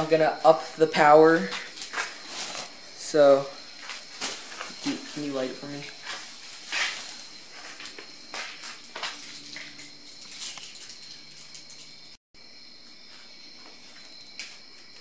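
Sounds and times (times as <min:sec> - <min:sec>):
plastic bag crinkling and rustling: 0:01.4 - 0:02.8, 0:03.9 - 0:08.0.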